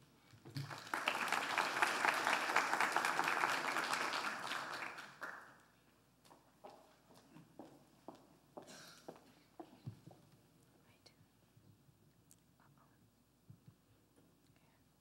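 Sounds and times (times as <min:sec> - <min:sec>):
audience applauding: 0:00.5 - 0:05.6.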